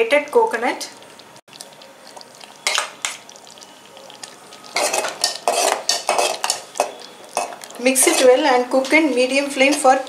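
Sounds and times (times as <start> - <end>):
spoon clatter: 4.7 - 8.4
spoon scraping metal pot: 4.7 - 10.0.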